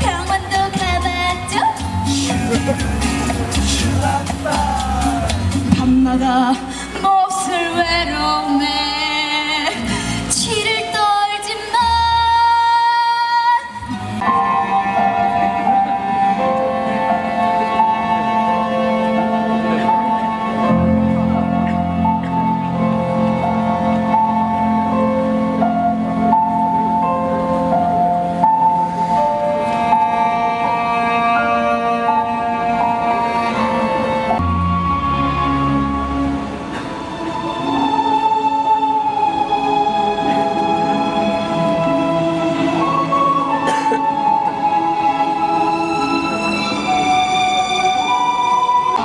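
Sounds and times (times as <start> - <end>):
woman singing into a microphone: 0.0 - 2.7, 3.8 - 14.0
backing track over loudspeakers: 0.0 - 49.0
slow instrumental music: 0.0 - 49.0.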